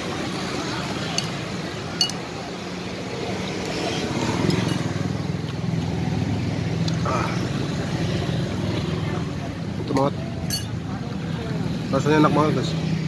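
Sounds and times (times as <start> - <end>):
vehicle engine rumble: 0.0 - 13.0
spoon clinking on ceramic bowl: 10.5 - 10.8.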